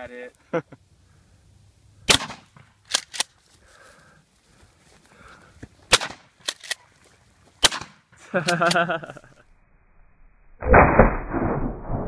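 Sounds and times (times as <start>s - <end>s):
shotgun firing: 2.1s - 3.2s, 5.9s - 6.3s, 7.6s - 8.0s.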